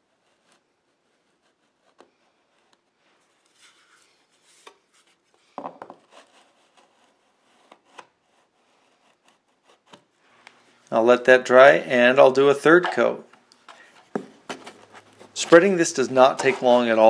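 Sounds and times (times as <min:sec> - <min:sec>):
drywall knife scraping: 0:00.0 - 0:05.4, 0:06.0 - 0:10.1, 0:13.7 - 0:17.0.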